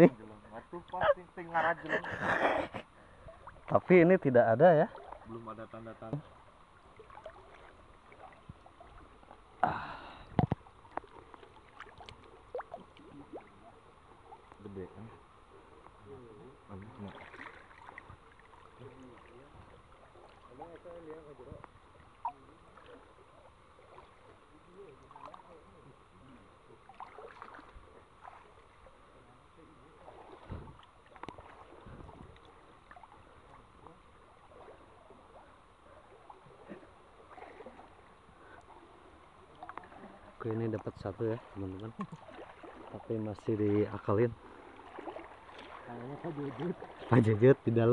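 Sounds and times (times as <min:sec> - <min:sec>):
water splashing and sloshing: 0:00.0 - 0:47.9
small water plops and drips: 0:06.0 - 0:09.4, 0:10.3 - 0:14.7, 0:16.8 - 0:21.0, 0:21.6 - 0:25.6, 0:26.8 - 0:28.8, 0:30.0 - 0:35.2, 0:39.5 - 0:40.1, 0:40.7 - 0:43.1, 0:44.4 - 0:47.1.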